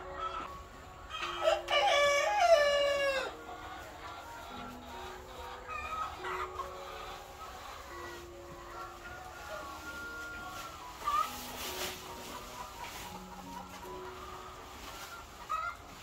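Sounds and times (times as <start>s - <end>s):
chicken calls: 0.0s - 16.0s
rooster crowing: 1.2s - 3.4s.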